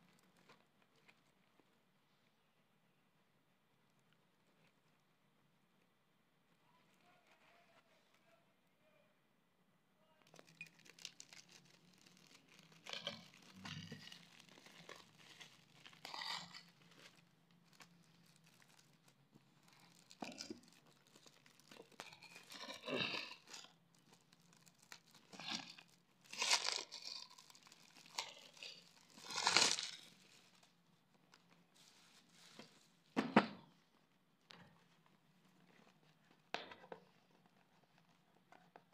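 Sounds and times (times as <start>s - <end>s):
plastic wrap crinkling and tearing: 10.2s - 33.2s.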